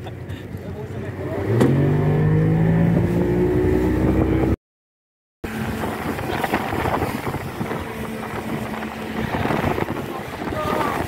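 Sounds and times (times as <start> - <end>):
speedboat engine: 0.0 - 4.6, 5.4 - 11.0
wind buffeting microphone: 5.4 - 11.0.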